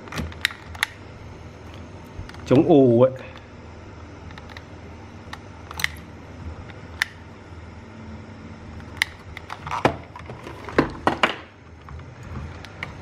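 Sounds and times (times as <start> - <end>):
desoldering pump snapping: 0.0 - 1.0, 5.3 - 7.2.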